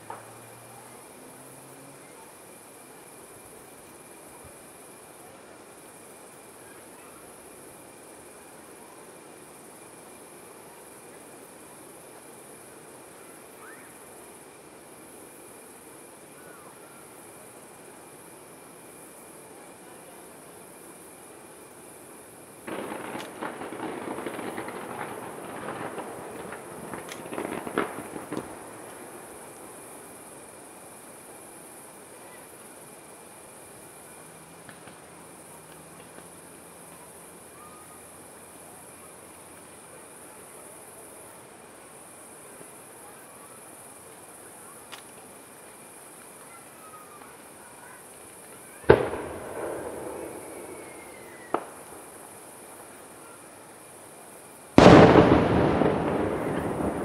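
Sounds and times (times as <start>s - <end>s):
small firework pop: 0.0s - 0.4s, 22.7s - 29.0s, 34.6s - 35.0s, 48.4s - 52.0s, 54.8s - 57.0s
fireworks crackling: 0.0s - 57.0s
insects chirping: 0.0s - 57.0s
firework bang: 22.6s - 29.3s, 48.8s - 52.1s, 54.8s - 57.0s.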